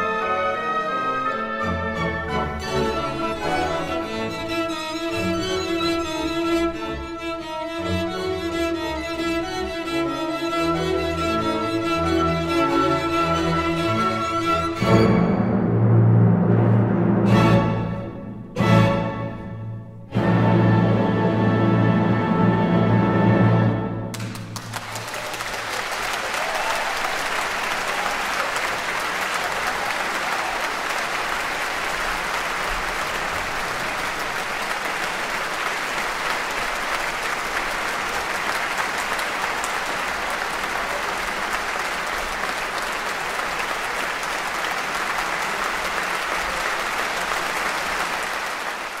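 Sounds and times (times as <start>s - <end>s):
large audience applauding: 24.1s - 49.0s.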